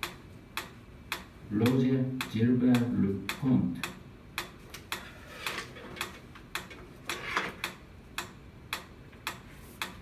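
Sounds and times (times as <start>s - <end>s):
metronome ticking: 0.0s - 5.0s, 7.6s - 10.0s.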